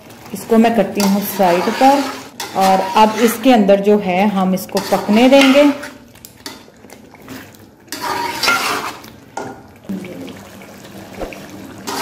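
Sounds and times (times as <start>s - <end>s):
metal spoon scraping a pot: 1.0s - 3.6s, 4.7s - 6.6s, 7.9s - 9.1s.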